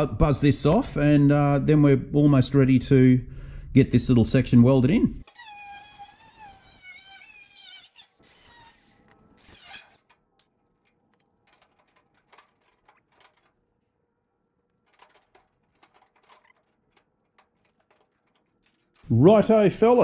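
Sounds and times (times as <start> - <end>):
angle grinder cutting sheet steel: 5.3 - 10.2
handling clicks and taps: 14.6 - 19.1.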